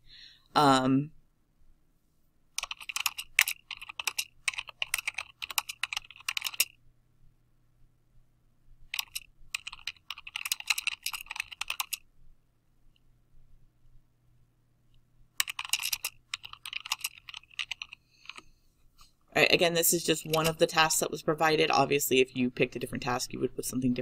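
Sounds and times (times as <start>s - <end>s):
fast typing on keyboard: 2.6s - 6.8s, 8.9s - 12.0s, 15.4s - 18.4s, 20.0s - 21.0s.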